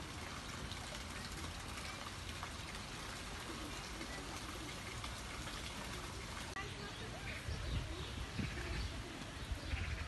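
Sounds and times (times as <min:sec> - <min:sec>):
water splashing into pond: 0:00.0 - 0:10.0.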